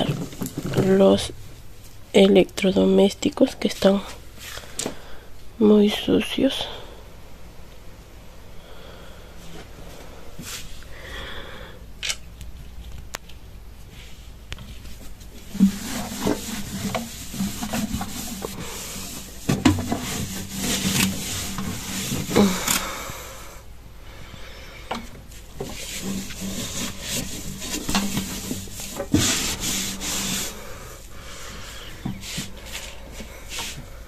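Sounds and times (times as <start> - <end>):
sponge scrubbing plastic: 14.8 - 23.1, 25.3 - 34.0.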